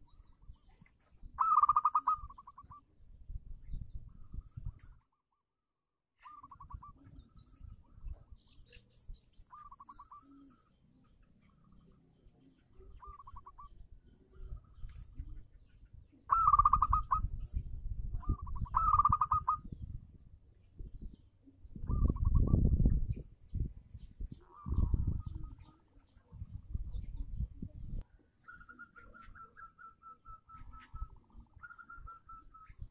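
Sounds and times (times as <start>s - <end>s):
dove trilling coos: 0.0s - 2.9s, 6.2s - 8.9s, 9.5s - 10.8s, 11.4s - 19.8s, 21.6s - 22.7s, 24.3s - 27.4s, 28.2s - 32.9s
faint high bird chirps: 0.0s - 5.5s, 6.2s - 20.0s, 20.6s - 32.9s.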